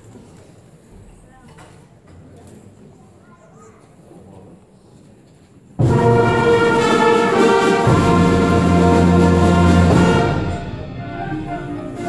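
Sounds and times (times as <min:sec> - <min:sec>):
concert band playing chords: 0:05.8 - 0:12.0.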